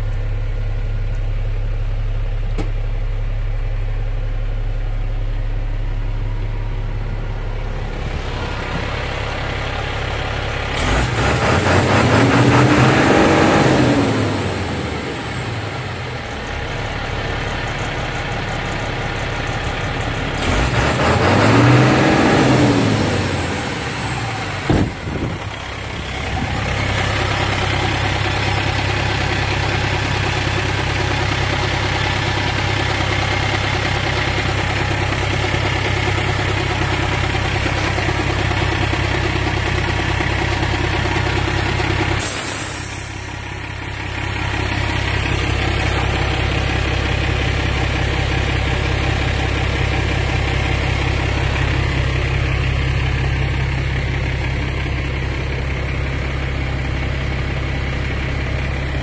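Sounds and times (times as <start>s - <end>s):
diesel truck engine idling: 0.0s - 59.0s
short air hiss: 42.2s - 43.3s.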